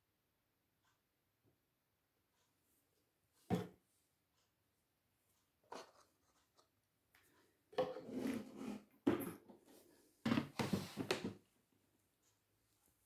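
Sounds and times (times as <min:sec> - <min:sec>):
plastic funnel knocking and scraping: 0:07.7 - 0:11.4.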